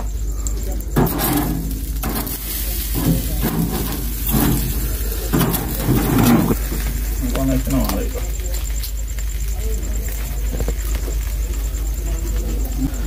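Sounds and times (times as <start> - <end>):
low rumble: 0.0 - 7.4
indistinct voices talking: 0.0 - 13.0
seafood sizzling on a grill: 0.0 - 13.0.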